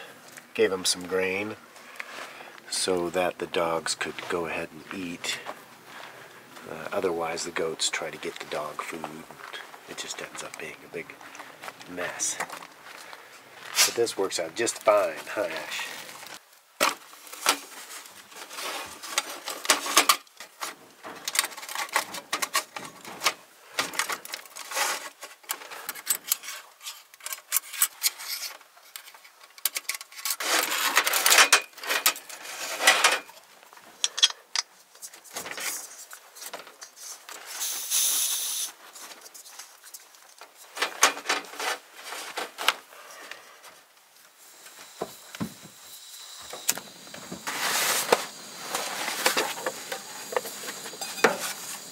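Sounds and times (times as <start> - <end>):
metal panels clinking and scraping: 18.3 - 33.4, 40.2 - 42.8, 46.9 - 51.9.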